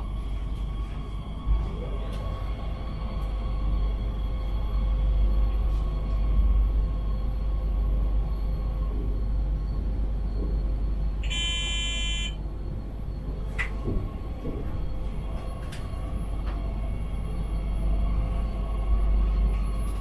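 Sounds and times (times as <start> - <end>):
train rumbling: 0.0 - 20.0
short electronic beep: 11.2 - 12.4.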